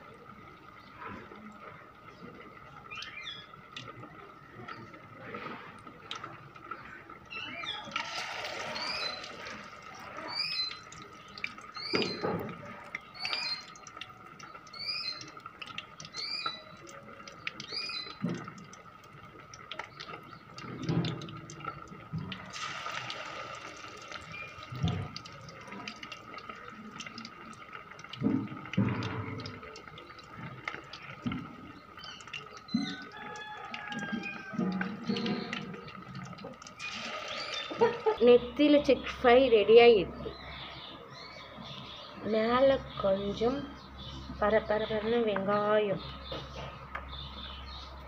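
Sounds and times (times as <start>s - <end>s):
fish sizzling in hot oil: 7.3s - 38.2s
bird chirping: 10.2s - 18.5s.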